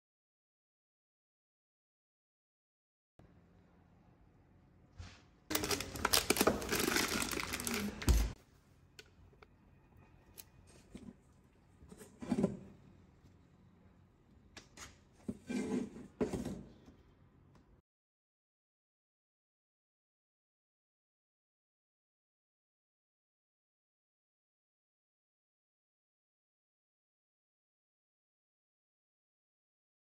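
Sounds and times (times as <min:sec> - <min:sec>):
kitchen clicking and scraping: 0:10.7 - 0:12.8.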